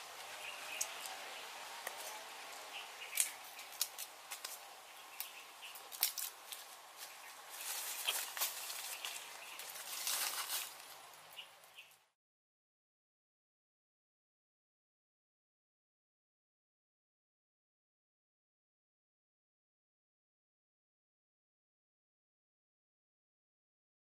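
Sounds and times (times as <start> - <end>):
dry leaves and twigs rustling: 1.8 - 12.0
twigs snapping: 3.1 - 4.6, 5.2 - 6.7.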